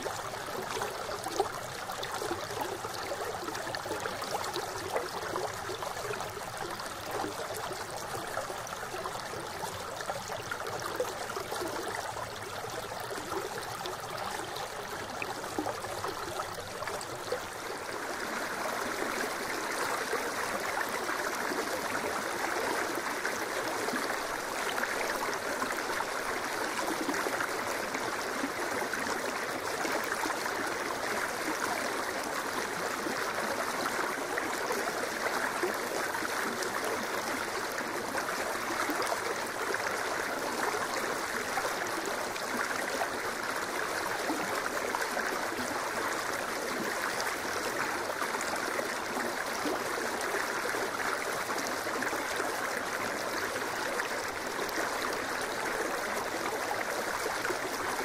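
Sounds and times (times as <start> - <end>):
stream flowing over stones: 0.0 - 58.0.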